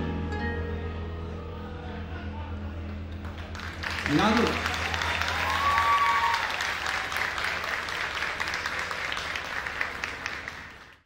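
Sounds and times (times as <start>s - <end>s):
audience applauding: 3.0s - 11.0s.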